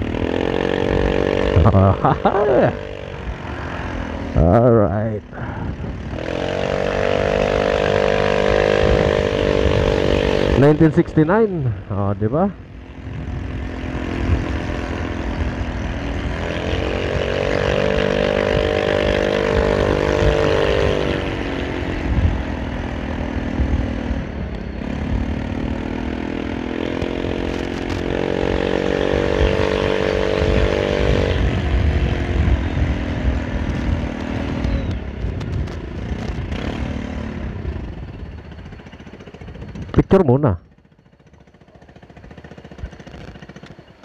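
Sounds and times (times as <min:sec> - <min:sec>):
motorcycle engine running: 0:00.0 - 0:44.0
wind buffeting microphone: 0:05.2 - 0:40.2.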